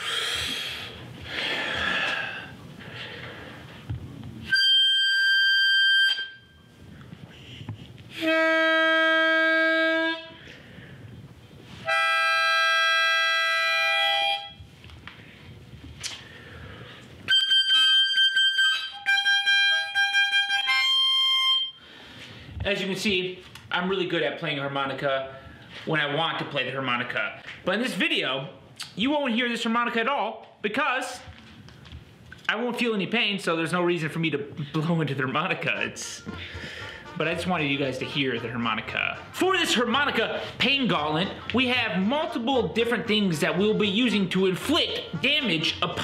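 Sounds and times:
harmonica notes: 4.4 - 6.7, 7.4 - 10.6, 11.7 - 14.6, 17.2 - 22.0, 35.6 - 46.0.

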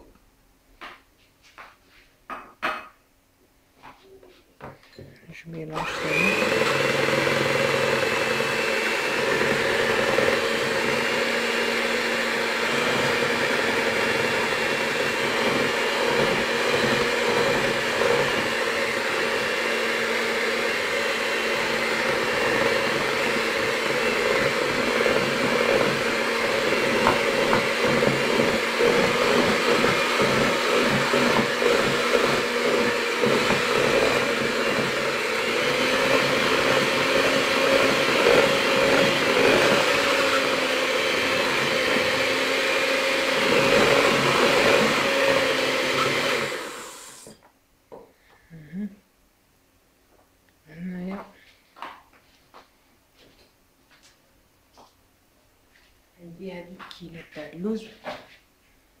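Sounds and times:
electric hand mixer whisking batter: 5.6 - 47.4.

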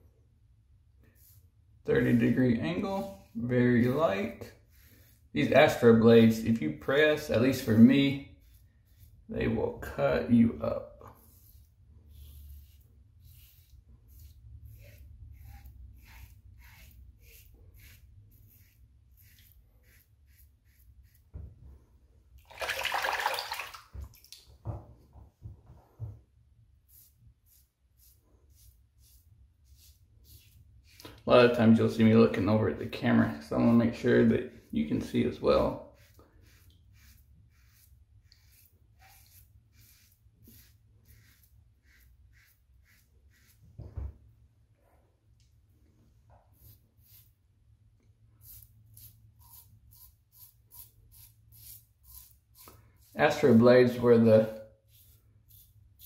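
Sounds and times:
razor scraping stubble: 1.1 - 21.4, 26.8 - 43.6, 48.4 - 56.0
safety razor scraping stubble: 3.8 - 9.6, 11.1 - 21.3, 48.4 - 54.2
tap water running: 22.4 - 24.5.

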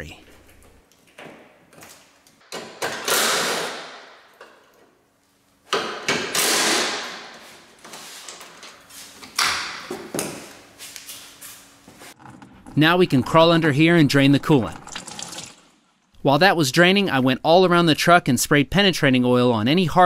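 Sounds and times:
cordless impact wrench: 6.2 - 7.2.

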